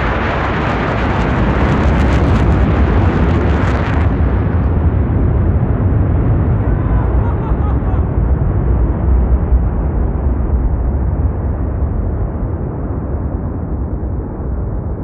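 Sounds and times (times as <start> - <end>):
fighter jet roar: 0.0 - 10.1.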